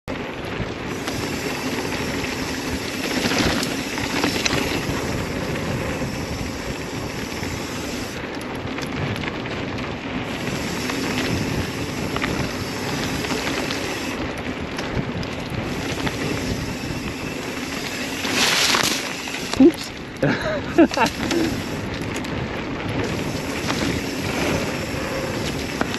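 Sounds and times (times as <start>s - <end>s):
bike rattling over bumps: 0.1s - 25.9s
tyres rolling on dirt: 0.1s - 25.9s
wind over microphone: 0.1s - 25.9s.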